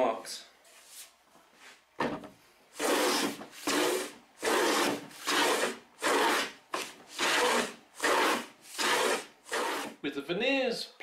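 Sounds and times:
hand plane strokes on wood: 2.8s - 10.0s.

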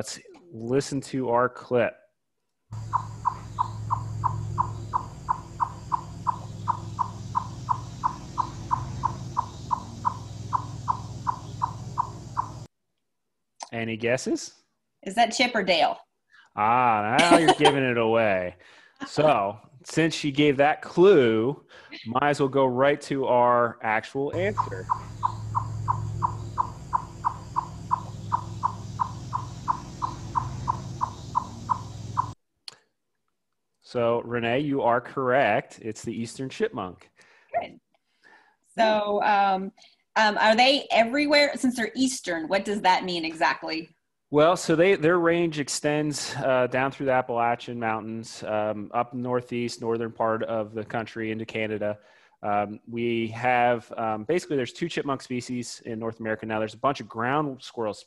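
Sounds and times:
chipmunk chipping: 2.7s - 12.7s, 24.4s - 32.4s
low steady hum: 16.6s - 18.4s, 24.3s - 32.4s.

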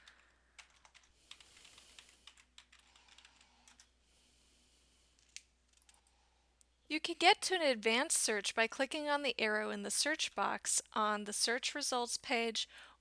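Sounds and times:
keyboard typing: 0.0s - 3.9s, 5.2s - 6.1s.

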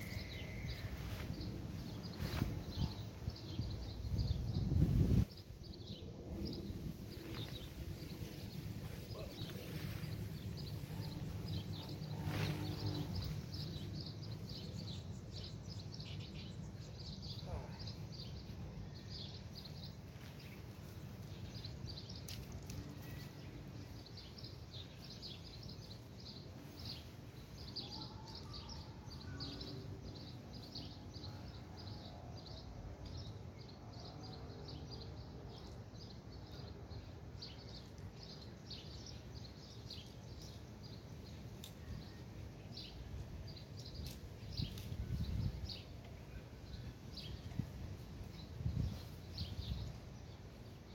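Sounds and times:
low outdoor rumble: 0.0s - 27.7s
small birds chirping: 0.0s - 50.9s.

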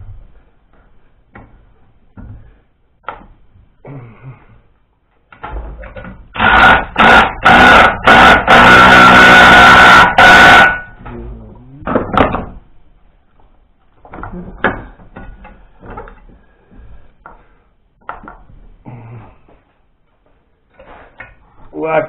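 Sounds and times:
power tool whining: 6.4s - 10.9s.

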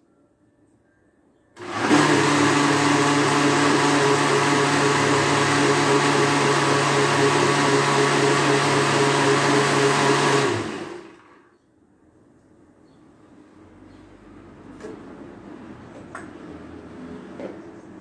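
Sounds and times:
blender motor running: 1.6s - 11.4s.

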